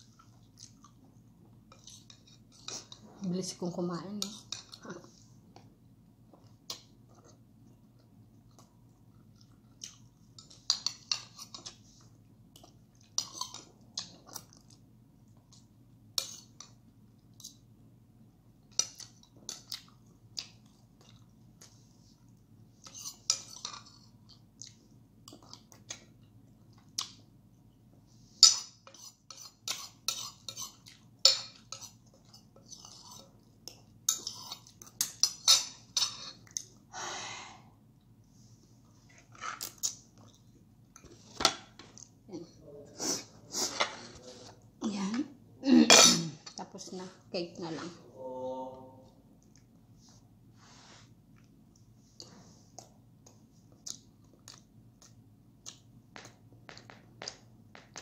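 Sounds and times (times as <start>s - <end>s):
chewing: 0.1s - 3.0s, 6.4s - 17.6s, 18.8s - 27.3s, 39.1s - 41.2s, 51.3s - 55.9s.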